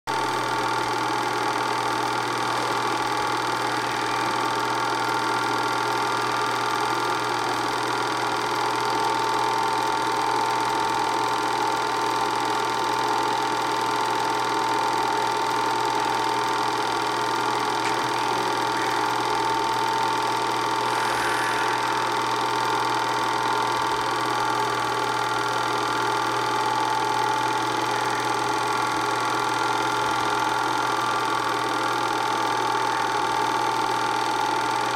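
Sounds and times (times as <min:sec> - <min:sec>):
high-pitched hum: 0:00.1 - 0:08.4, 0:16.2 - 0:34.1
film projector whirring: 0:00.1 - 0:34.9.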